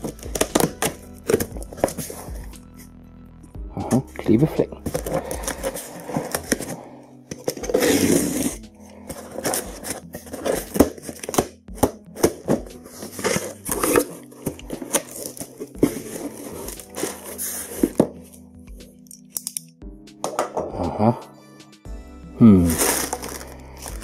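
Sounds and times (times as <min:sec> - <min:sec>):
cardboard flaps scraping and crinkling: 0:04.9 - 0:18.3, 0:22.7 - 0:24.0
tape tearing rasp: 0:07.4 - 0:08.6
utility knife slitting packing tape: 0:07.8 - 0:08.5.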